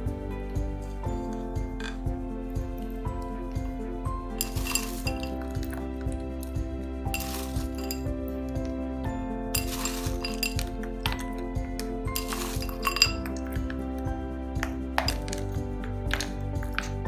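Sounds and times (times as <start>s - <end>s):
background music with steady beat: 0.0s - 17.0s
frozen berries rattling in bowl: 4.4s - 5.8s, 7.1s - 8.1s, 9.6s - 11.4s, 12.1s - 13.8s, 14.6s - 17.0s.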